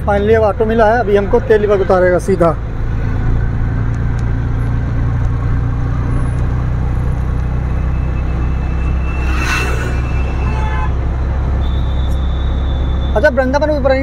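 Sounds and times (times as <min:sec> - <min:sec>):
rickshaw engine droning: 0:04.8 - 0:13.0.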